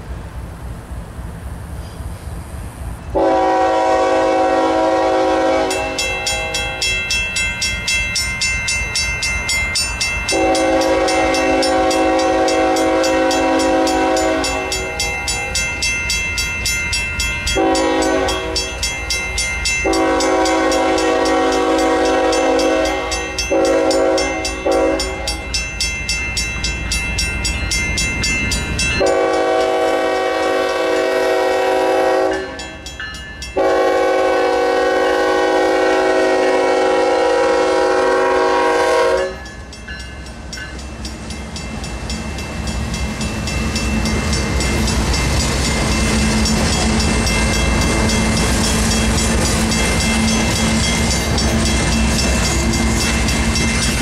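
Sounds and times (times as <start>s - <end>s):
locomotive horn blasts: 3.1s - 6.9s, 10.3s - 15.6s, 17.6s - 18.8s, 19.8s - 25.4s, 29.0s - 32.8s, 33.6s - 39.5s
railroad crossing bell ringing: 3.1s - 54.0s.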